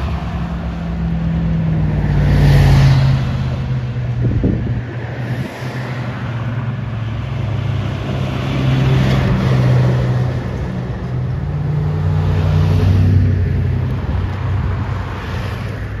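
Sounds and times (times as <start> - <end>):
vehicle engines passing: 0.0 - 16.0.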